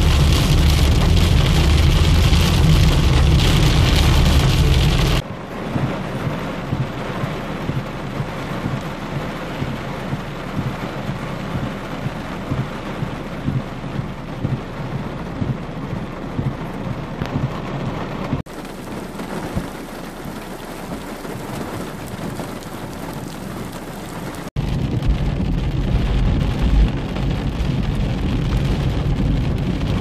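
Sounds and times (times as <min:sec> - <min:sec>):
low rumble: 0:00.0 - 0:18.4, 0:24.6 - 0:30.0
heavy rain pelting a car: 0:00.0 - 0:30.0
rain splashing on flooded road: 0:00.0 - 0:30.0.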